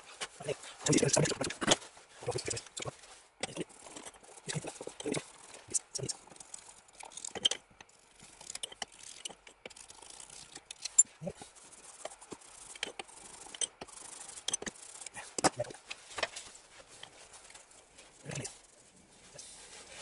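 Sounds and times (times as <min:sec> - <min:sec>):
pliers clicking and scraping on metal: 0:07.0 - 0:11.1.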